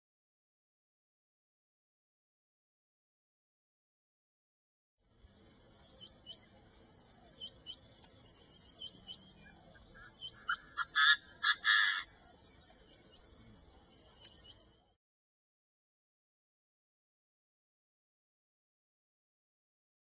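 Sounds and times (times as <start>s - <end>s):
high insect drone: 5.0s - 14.9s
faint chirps: 5.1s - 15.0s
bird calling harshly: 10.0s - 12.1s.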